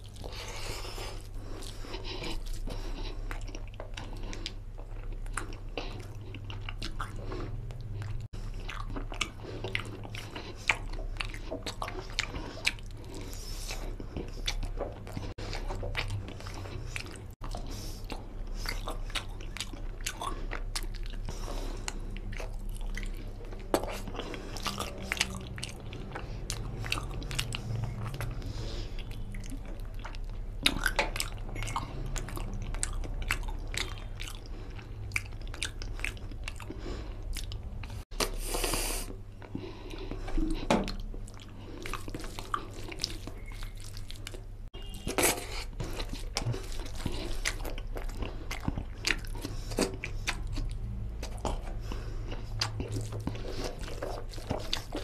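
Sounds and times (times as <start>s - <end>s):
person chewing: 0.0s - 55.0s
steady low hum: 0.0s - 55.0s
mouth clicks and smacks: 40.2s - 55.0s.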